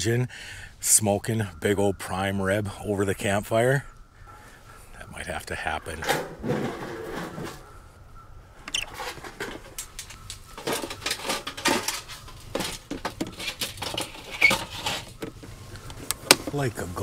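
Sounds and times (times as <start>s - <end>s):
metal pieces knocking and scraping: 8.8s - 15.4s.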